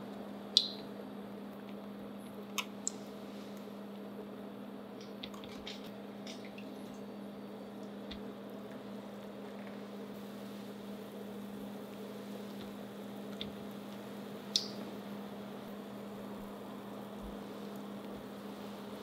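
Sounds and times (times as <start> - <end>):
induction cooktop hum: 0.0 - 19.0
oil frying in a pan: 10.0 - 19.0.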